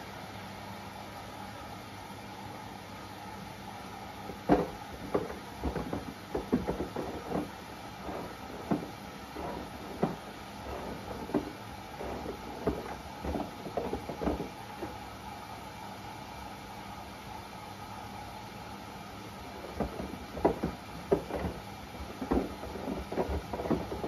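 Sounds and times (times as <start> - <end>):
washing machine humming: 0.0 - 24.0.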